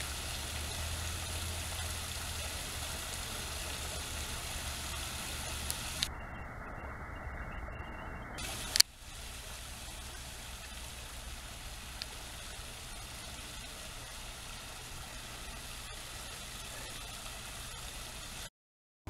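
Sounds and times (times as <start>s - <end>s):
waterfall splashing into pond: 0.0s - 6.1s, 8.4s - 18.5s
low steady hum: 0.0s - 18.5s.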